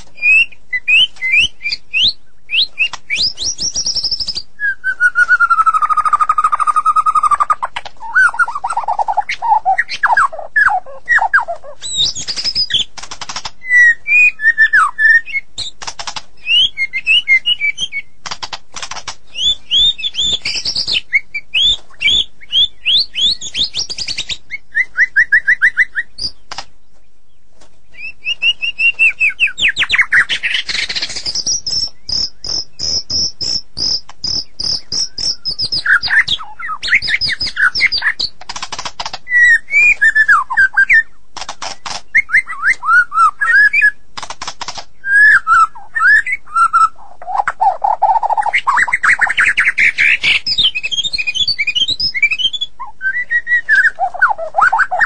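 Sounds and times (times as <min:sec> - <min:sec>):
bird singing whistled phrases: 0:00.2 - 0:12.9, 0:13.6 - 0:15.8, 0:16.4 - 0:18.2, 0:19.3 - 0:26.4, 0:27.9 - 0:38.3, 0:39.3 - 0:41.2, 0:42.1 - 0:44.0, 0:45.0 - 0:55.0
bird clicking rattles: 0:12.2 - 0:13.6, 0:15.6 - 0:16.3, 0:18.2 - 0:19.5, 0:38.2 - 0:39.2, 0:41.4 - 0:42.2, 0:44.2 - 0:44.9.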